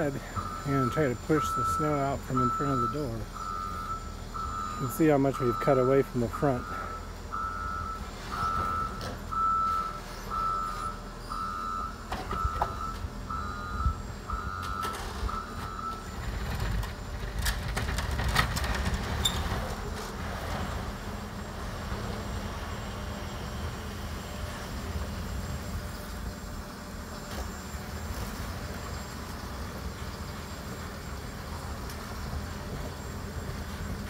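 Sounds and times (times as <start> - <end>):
reverse alarm beeping: 0.0 - 16.3
engine running low: 0.0 - 34.0.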